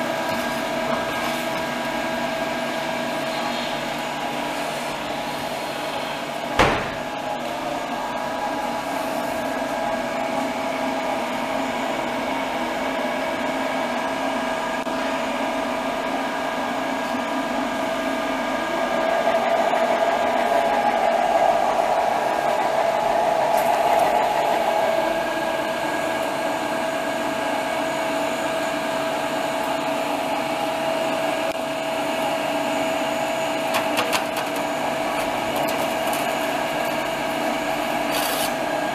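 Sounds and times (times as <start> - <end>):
blower whir with held tone: 0.0 - 38.9
sharp knock: 6.6 - 7.0.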